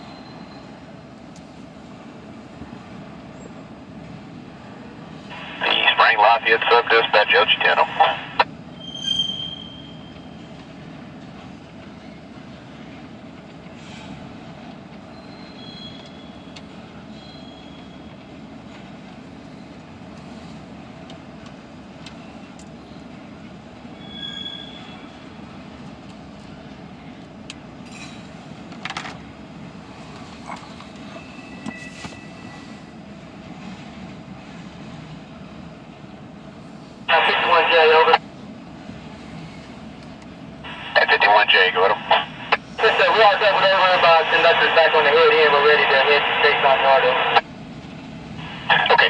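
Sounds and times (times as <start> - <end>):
train wheels rumbling on rail: 8.5 - 37.1
high wheel squeals: 8.7 - 10.5, 15.1 - 16.5, 17.1 - 18.1, 24.0 - 25.2, 31.1 - 32.8.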